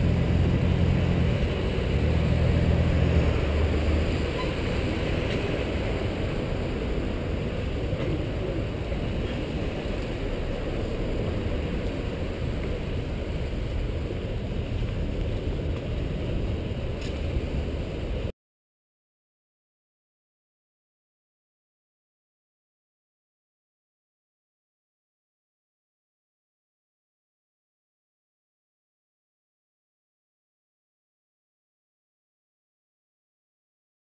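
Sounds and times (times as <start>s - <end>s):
car engine drone: 0.0s - 18.3s
car traffic hum: 0.0s - 18.3s
wind rush on microphone: 0.0s - 18.3s.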